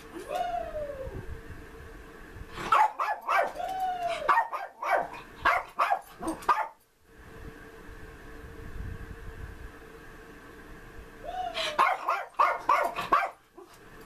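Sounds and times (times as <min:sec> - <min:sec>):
dog barking: 0:02.7 - 0:03.6, 0:04.3 - 0:06.8, 0:11.8 - 0:13.4
dog whining: 0:11.2 - 0:13.0.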